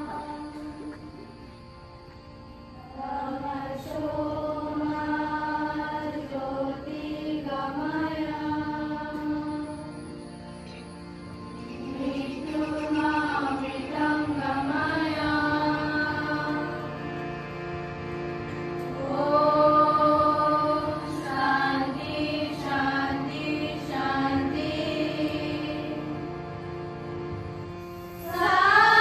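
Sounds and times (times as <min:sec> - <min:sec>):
students singing a prayer in unison: 0:00.0 - 0:01.4, 0:02.8 - 0:09.9, 0:11.7 - 0:17.3, 0:18.8 - 0:27.0, 0:28.1 - 0:29.0
steady drone: 0:00.0 - 0:29.0.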